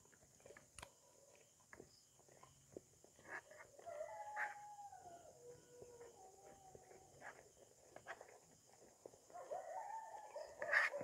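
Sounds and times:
rooster crowing: 0:03.8 - 0:06.1.

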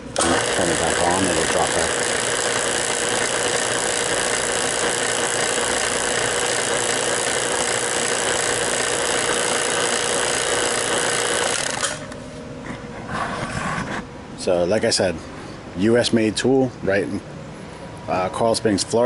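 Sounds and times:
vacuum pump running: 0:00.0 - 0:12.2.

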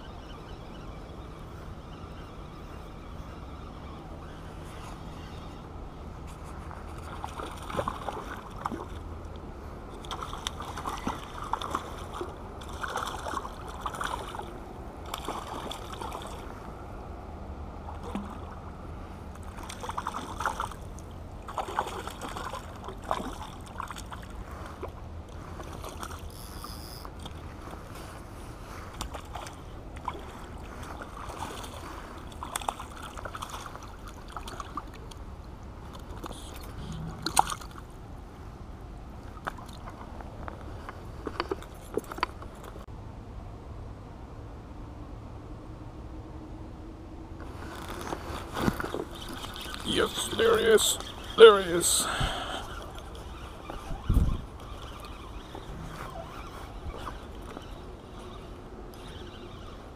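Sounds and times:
steady low rumble: 0:35.3 - 0:39.4
water splashing against rocky shore: 0:35.8 - 0:38.0.

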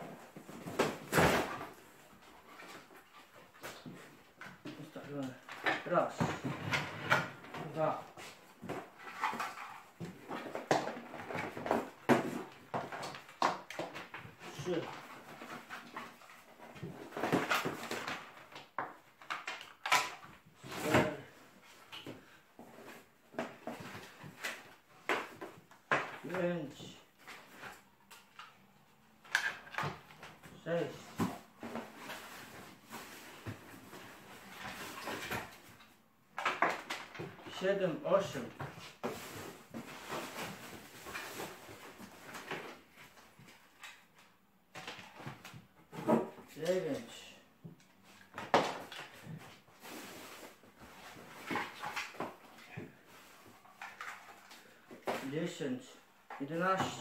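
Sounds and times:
plastic adapters rustling: 0:00.0 - 0:26.4, 0:38.2 - 0:47.1, 0:47.8 - 0:55.3
cables rustling and scraping: 0:01.7 - 0:18.5.

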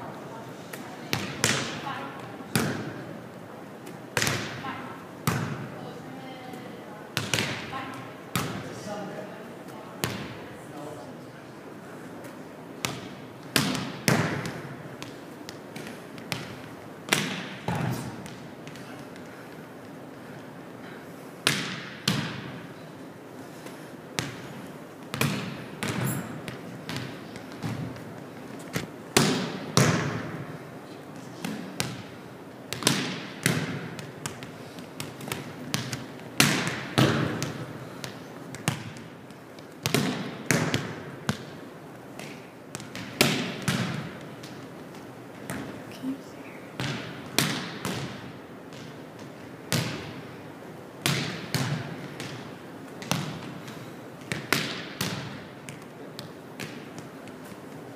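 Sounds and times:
volleyballs struck by hand: 0:00.7 - 0:03.0, 0:03.8 - 0:04.6, 0:07.2 - 0:07.7, 0:12.8 - 0:19.3, 0:21.4 - 0:22.6, 0:24.2 - 0:30.5, 0:31.2 - 0:45.7, 0:46.8 - 0:50.2, 0:51.0 - 0:57.6
balls bouncing on wooden floor: 0:25.1 - 0:30.4, 0:32.7 - 0:41.6.

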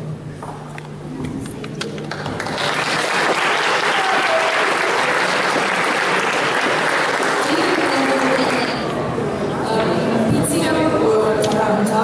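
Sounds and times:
audience applauding: 0:01.8 - 0:08.8.

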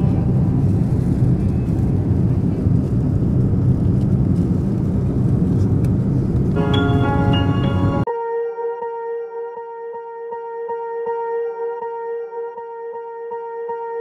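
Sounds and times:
airliner engine rumble: 0:00.0 - 0:08.1
music with ringing tones: 0:06.6 - 0:14.0.

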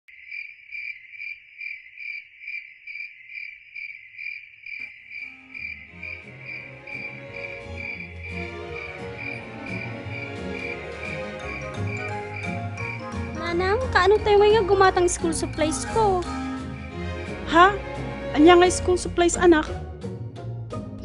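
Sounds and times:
crickets chirping: 0:00.1 - 0:17.4
music: 0:05.3 - 0:21.0.

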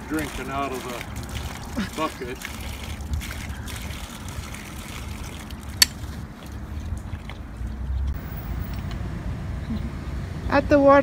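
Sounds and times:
animal slurping water: 0:00.0 - 0:08.7
running water stream: 0:00.0 - 0:09.0.

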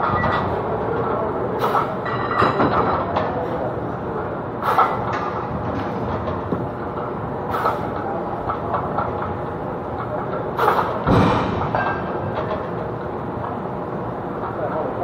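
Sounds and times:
heavy thud: 0:11.0 - 0:11.8.

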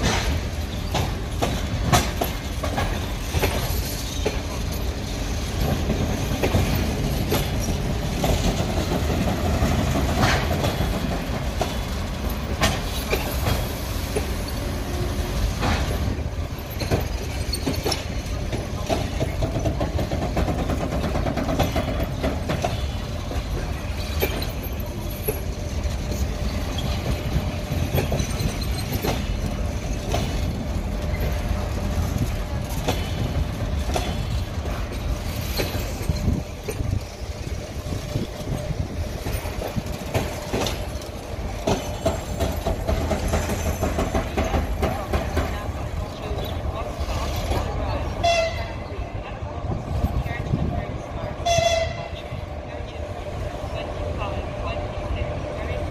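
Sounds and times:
wheels clicking over rail joints: 0:00.0 - 0:52.4
train wheels rumbling: 0:00.0 - 0:55.9.

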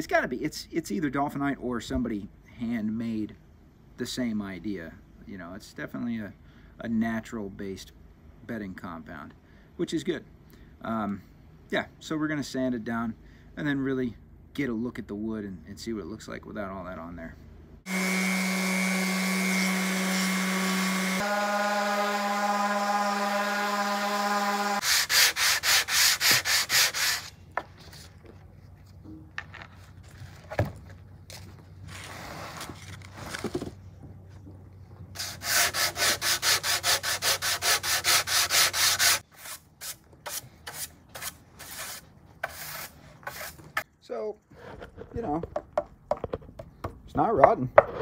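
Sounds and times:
orbital sander running on wood: 0:17.9 - 0:24.9
hand sanding wood: 0:17.9 - 0:27.3, 0:35.2 - 0:43.8.

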